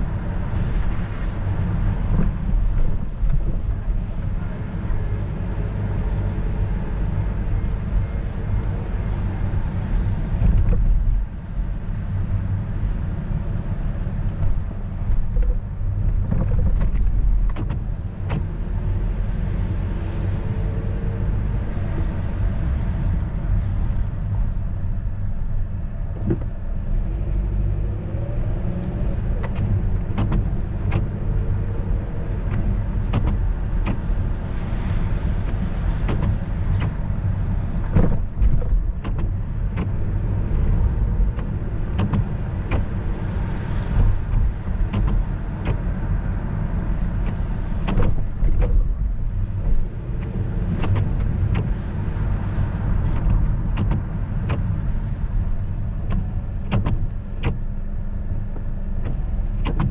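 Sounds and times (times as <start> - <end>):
car engine and tyres rumbling: 0.0 - 59.9
sharp ticks and knocks: 29.4 - 31.2, 32.5 - 34.1, 35.4 - 37.0, 41.3 - 43.0, 44.0 - 45.9, 47.2 - 48.9, 50.2 - 51.8, 53.0 - 54.8, 56.1 - 57.7, 59.0 - 59.9.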